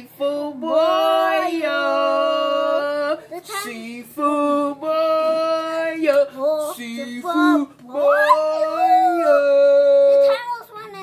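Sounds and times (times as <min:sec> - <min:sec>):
woman and child singing: 0:00.5 - 0:04.1, 0:06.2 - 0:11.0.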